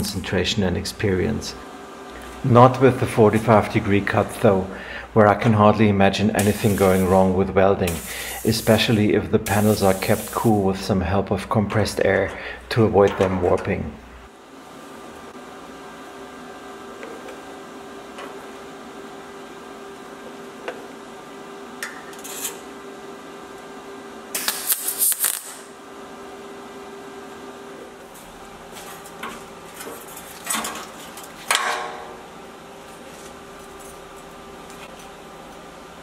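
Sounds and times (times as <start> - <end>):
steady low hum: 0.0 - 36.0
welder crackling burst: 6.4 - 7.2, 7.8 - 10.6, 24.3 - 25.8.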